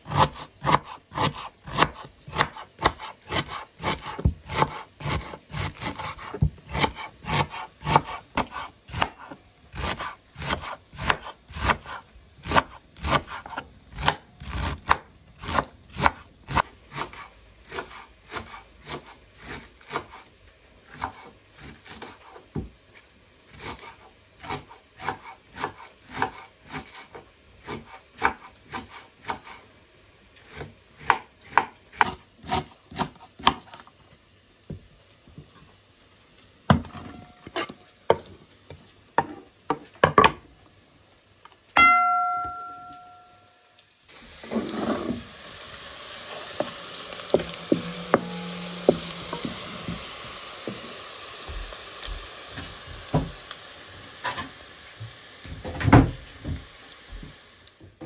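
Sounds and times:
knife shredding cabbage on board: 0.0s - 20.3s, 20.9s - 22.4s, 23.5s - 29.6s.

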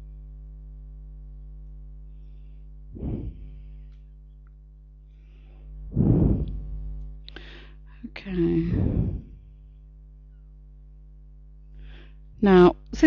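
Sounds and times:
electrical mains hum: 0.0s - 13.0s
puff of noise: 3.0s - 3.8s, 5.9s - 6.6s, 8.6s - 9.4s.

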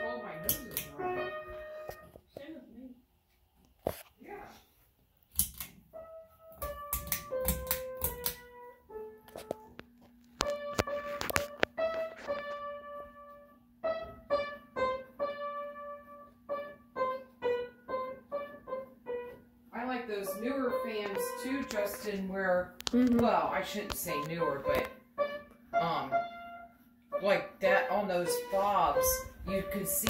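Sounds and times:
electronic keyboard notes: 0.0s - 2.1s, 5.9s - 30.0s.

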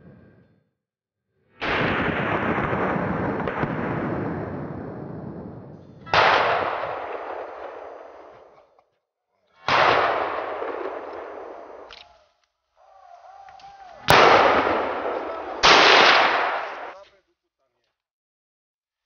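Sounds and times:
rifle shots with rolling echo: 1.6s - 8.6s, 9.6s - 12.0s, 14.0s - 17.0s.

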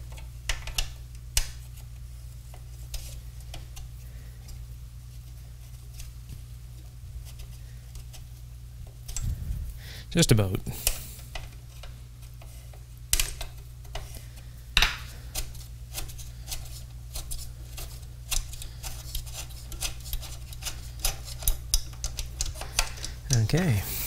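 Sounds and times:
steady low hum: 0.0s - 24.0s
metallic clicks and scrapes: 15.3s - 23.4s.

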